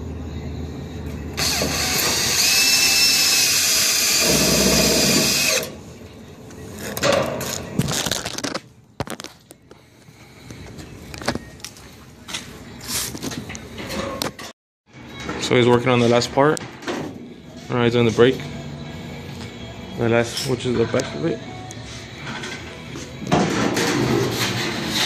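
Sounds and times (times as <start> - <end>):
cordless drill running on sheet metal: 1.4 - 5.7.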